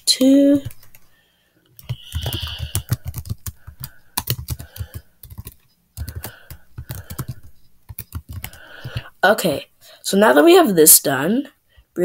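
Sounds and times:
computer keyboard typing: 0:00.5 - 0:01.0, 0:01.8 - 0:09.1.

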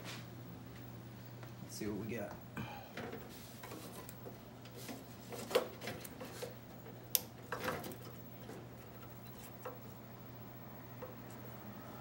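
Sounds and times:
steady low hum: 0:00.0 - 0:12.0
hands rustling among wiring: 0:02.9 - 0:10.3.

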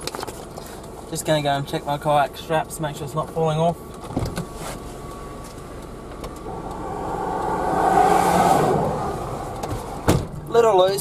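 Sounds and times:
vehicle driving past: 0:06.4 - 0:10.5.

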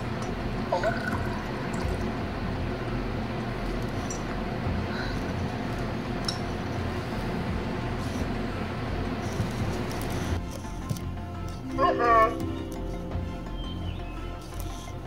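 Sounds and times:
steady low hum: 0:00.0 - 0:15.0
liquid pouring sound effect: 0:00.7 - 0:02.2
short rising chirp: 0:12.4 - 0:15.0.

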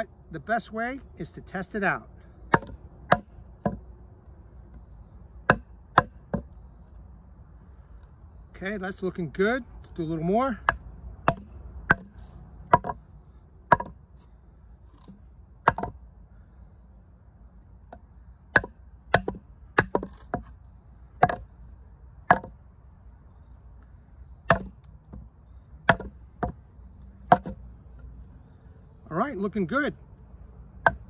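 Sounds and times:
wooden baton striking knife spine: 0:24.5 - 0:24.7, 0:25.9 - 0:26.6.

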